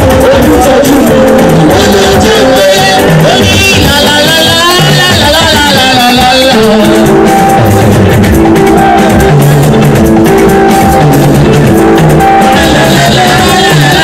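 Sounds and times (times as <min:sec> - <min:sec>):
band playing instrumental: 0:00.0 - 0:14.0
people singing: 0:00.2 - 0:07.2, 0:12.4 - 0:14.0.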